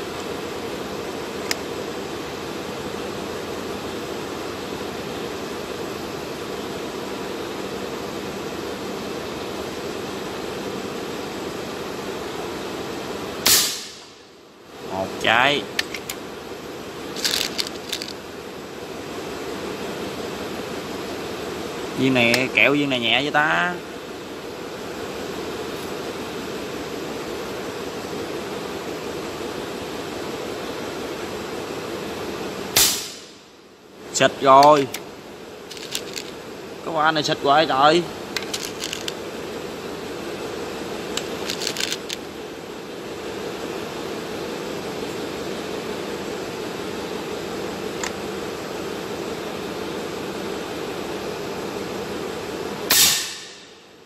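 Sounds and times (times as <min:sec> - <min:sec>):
steady hiss: 0:00.0 - 0:54.0.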